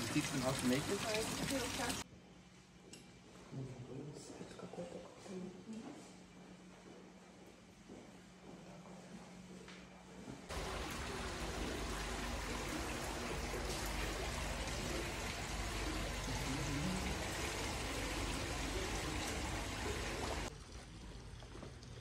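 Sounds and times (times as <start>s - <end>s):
rush of running water: 0.0s - 2.0s, 10.5s - 20.5s.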